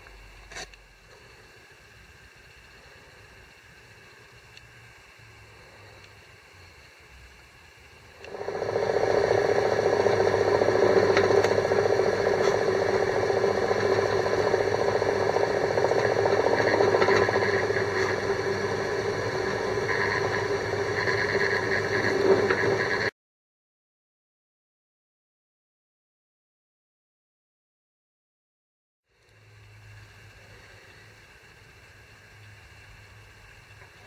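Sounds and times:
drill press motor hum: 0:00.0 - 0:23.1.

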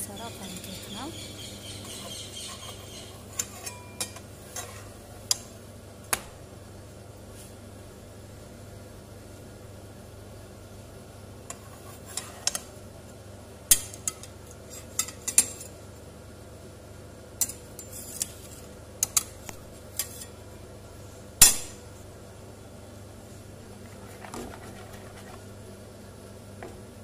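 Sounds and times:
spatula and plate clinking on pan: 0:02.6 - 0:04.8.

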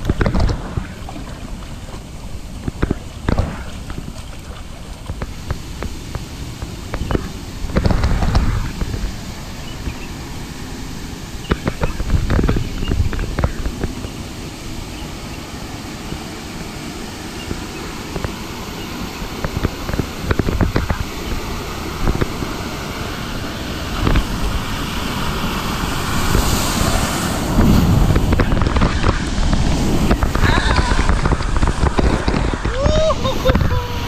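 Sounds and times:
water knocks close to microphone: 0:00.0 - 0:06.2
water sloshing and splashing: 0:00.0 - 0:34.0.

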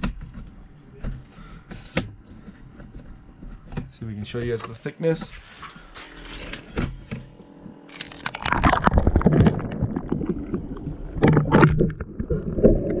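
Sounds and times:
water sloshing and gurgling: 0:05.4 - 0:13.0.

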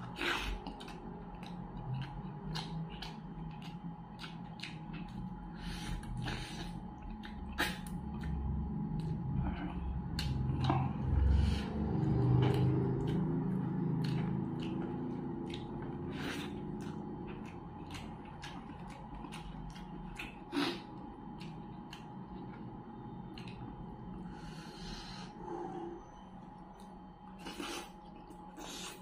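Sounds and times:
chewing food: 0:00.0 - 0:24.6
wet lip smacks and mouth clicks: 0:00.3 - 0:05.2.

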